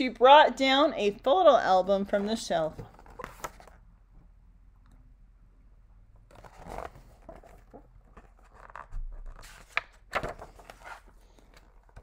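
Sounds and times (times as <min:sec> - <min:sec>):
book rustling and page turning: 0:02.1 - 0:03.8, 0:06.2 - 0:12.0.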